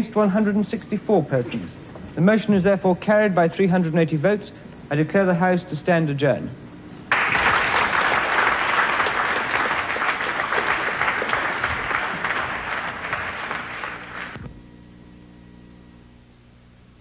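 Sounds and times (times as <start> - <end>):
faint steady hum: 0.0 - 17.0
large audience applauding: 7.1 - 14.4.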